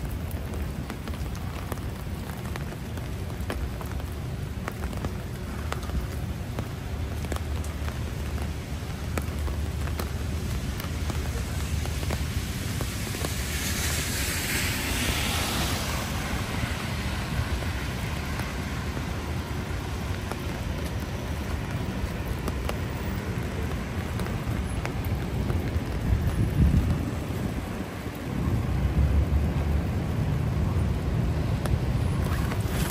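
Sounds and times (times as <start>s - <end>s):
car tyres hissing on wet street: 0.0s - 32.9s
city street noise rumble: 0.0s - 32.9s
rain pattering on umbrella: 0.0s - 32.9s.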